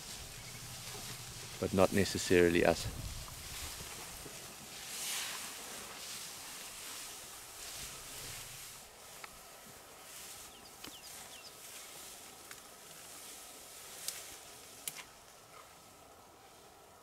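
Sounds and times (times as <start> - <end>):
soft steady hiss: 0.0 - 17.0.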